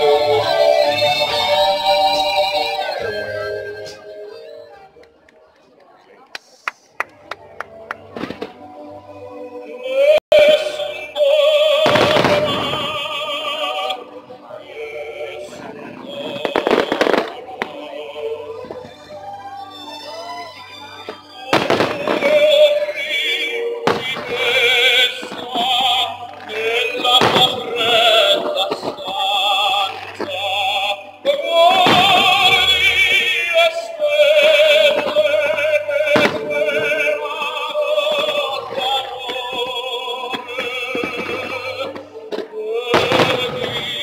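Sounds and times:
operatic singing with vibrato: 0:00.0 - 0:04.9, 0:08.6 - 0:44.0
musical backing: 0:00.0 - 0:05.9, 0:06.9 - 0:44.0
firework bursts: 0:11.8 - 0:13.4, 0:16.2 - 0:17.8, 0:21.5 - 0:29.1.

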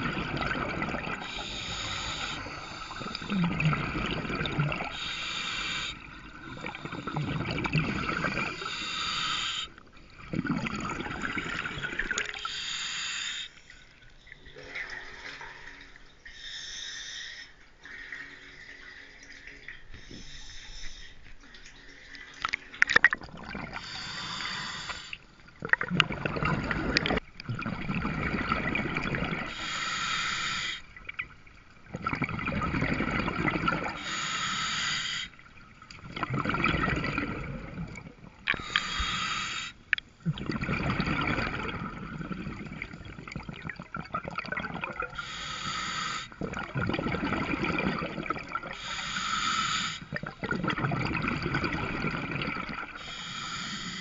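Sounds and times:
bubbling exhales: 0:00.0 - 0:13.4, 0:22.4 - 0:30.8, 0:31.9 - 0:35.3, 0:36.0 - 0:54.0
hissing regulator inhales: 0:01.2 - 0:03.6, 0:04.9 - 0:07.3, 0:08.2 - 0:09.8, 0:12.4 - 0:13.6, 0:16.3 - 0:17.6, 0:20.0 - 0:21.3, 0:23.8 - 0:25.2, 0:29.5 - 0:30.9, 0:34.0 - 0:35.4, 0:38.5 - 0:39.8, 0:45.1 - 0:46.4, 0:48.7 - 0:50.1, 0:53.0 - 0:54.0.

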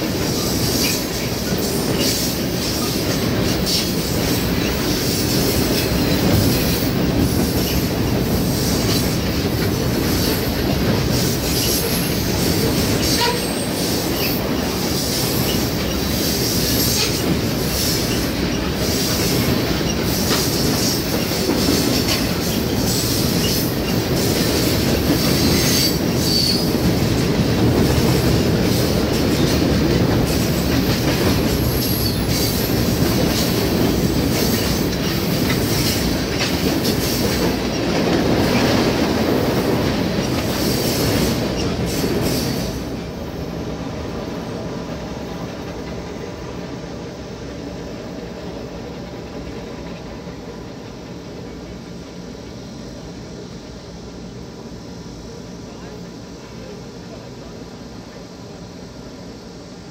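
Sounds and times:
train wheels clicking over rail joints: 0:00.0 - 0:43.6, 0:44.2 - 0:46.7
freight train rumbling past: 0:00.0 - 0:59.9.

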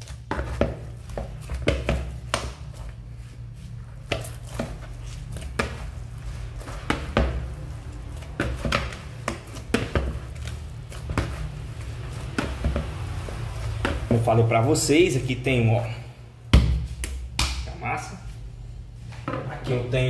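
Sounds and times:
dough knocking and thumping in bowl: 0:00.0 - 0:03.1, 0:03.8 - 0:14.4, 0:16.5 - 0:17.7
low steady hum: 0:00.0 - 0:20.0.

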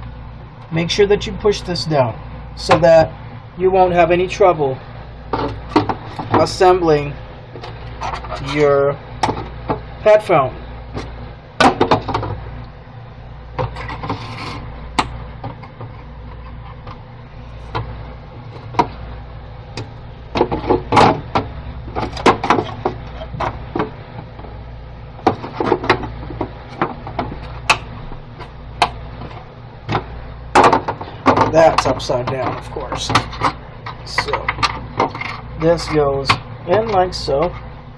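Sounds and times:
steady low hum: 0:00.0 - 0:37.9.

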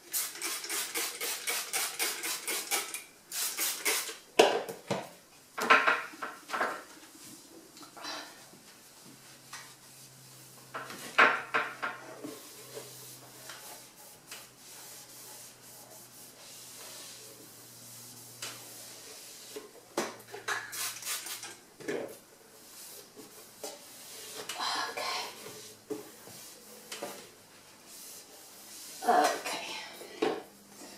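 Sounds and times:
cloth wiping cupboard floor: 0:08.3 - 0:11.2, 0:12.0 - 0:19.8, 0:22.1 - 0:30.9.

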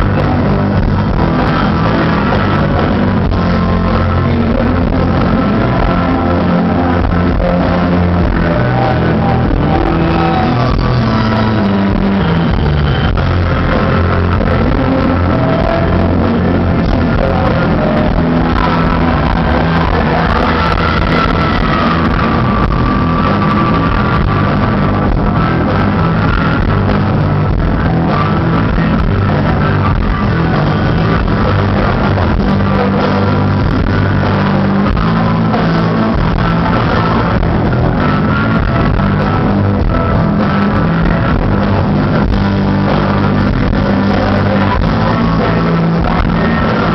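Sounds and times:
rock band playing live: 0:00.0 - 0:46.9.

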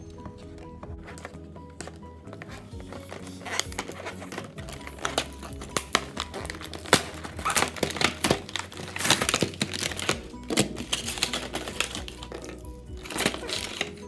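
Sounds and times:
background music: 0:00.0 - 0:14.0
plastic packaging being torn open: 0:03.0 - 0:14.0.

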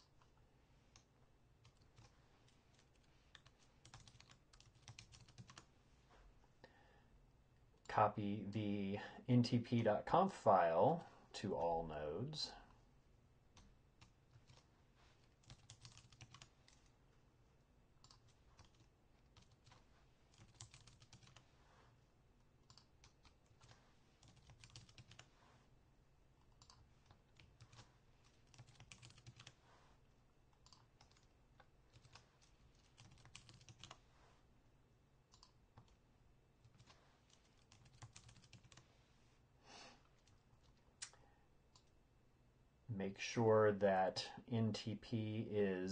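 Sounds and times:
faint keyboard typing: 0:00.0 - 0:05.7, 0:13.5 - 0:17.0, 0:18.0 - 0:25.5, 0:26.4 - 0:29.8, 0:30.5 - 0:34.2, 0:35.3 - 0:36.0, 0:36.6 - 0:38.9, 0:40.0 - 0:42.0.

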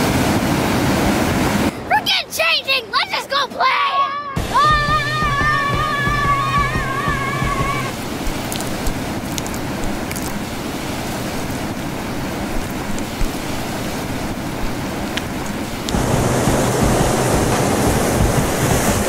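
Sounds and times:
ocean surf: 0:00.0 - 0:19.0
wind: 0:00.0 - 0:19.0
wind buffeting microphone: 0:04.4 - 0:19.0.

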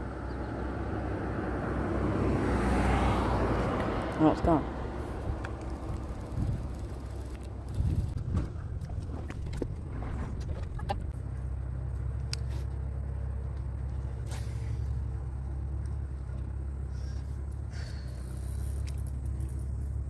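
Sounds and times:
steady low rumble: 0:04.6 - 0:20.0.

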